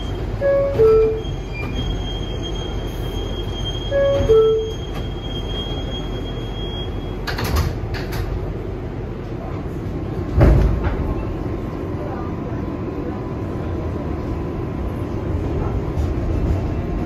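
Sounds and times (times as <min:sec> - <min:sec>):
sliding doors closing with clunks: 0:00.0 - 0:08.5, 0:10.3 - 0:11.4
subway car low rumble: 0:00.0 - 0:17.0.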